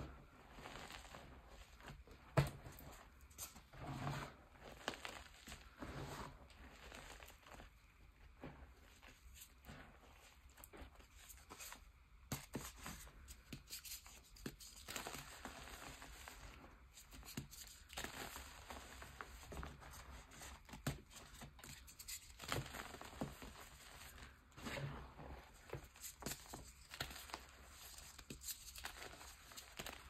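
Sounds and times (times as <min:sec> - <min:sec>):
hands crushing chalk: 0:11.4 - 0:24.3, 0:25.6 - 0:30.0.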